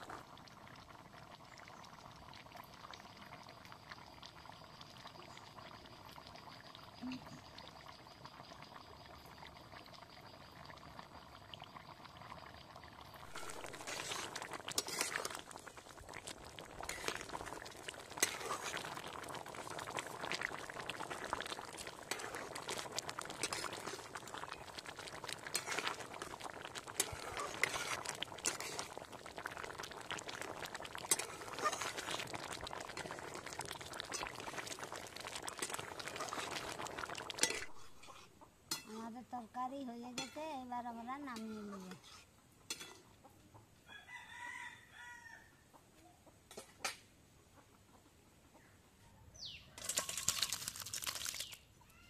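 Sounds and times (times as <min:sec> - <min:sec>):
thick curry bubbling: 0:00.0 - 0:43.2.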